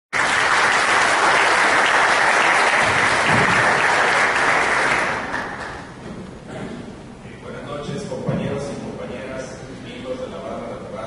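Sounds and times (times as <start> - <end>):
audience applauding: 0.1 - 6.0.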